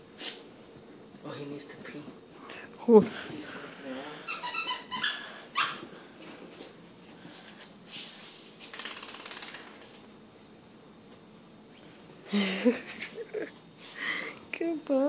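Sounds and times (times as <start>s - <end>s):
dog claws clicking on tile: 8.7s - 10.0s.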